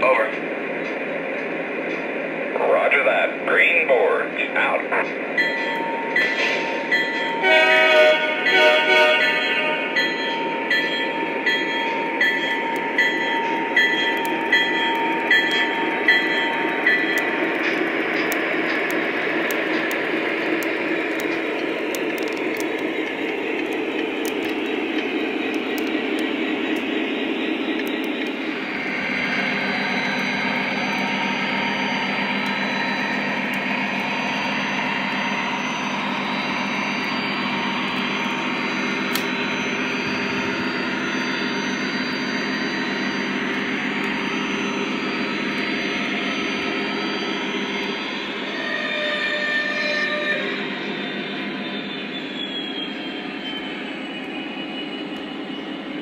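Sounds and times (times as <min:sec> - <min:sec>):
wheels rolling on track: 0:10.0 - 0:47.5.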